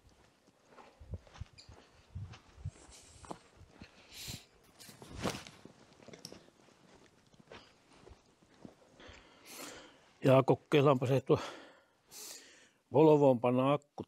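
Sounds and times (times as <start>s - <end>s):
footsteps on snow: 0.0s - 9.8s.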